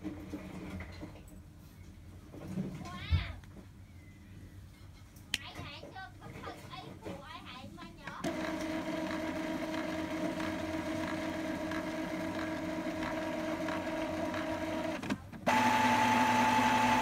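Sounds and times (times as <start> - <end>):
printer motor running: 8.2 - 17.0.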